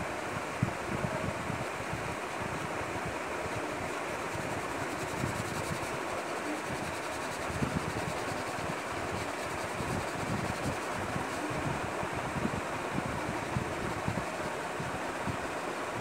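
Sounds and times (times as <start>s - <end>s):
crayon scratching on paper: 4.3s - 11.6s.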